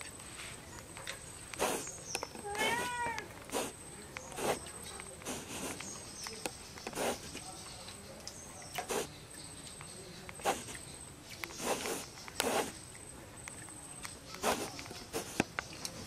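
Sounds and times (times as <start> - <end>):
fingers scraping rice on plates: 1.5 - 8.0, 8.6 - 9.2, 9.8 - 12.9, 14.3 - 16.0.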